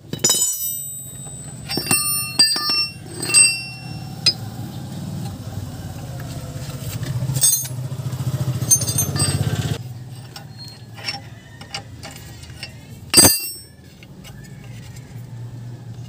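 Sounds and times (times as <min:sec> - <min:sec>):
hand tools clicking on metal: 0:00.0 - 0:04.6, 0:07.0 - 0:07.8, 0:08.5 - 0:14.8
loud ringing metal clank: 0:00.0 - 0:04.7, 0:07.4 - 0:09.8, 0:13.1 - 0:13.8.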